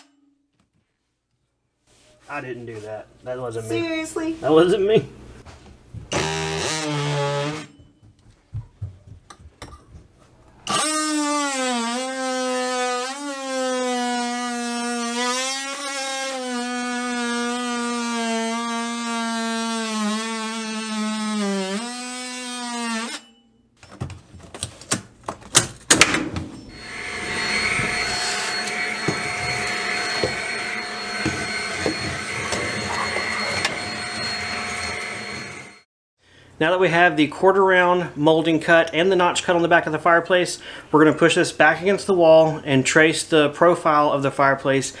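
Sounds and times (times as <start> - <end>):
oscillating multi-tool cutting wood: 6.1 - 7.8, 10.7 - 23.4, 26.6 - 35.9
stick vacuum running: 26.0 - 35.8.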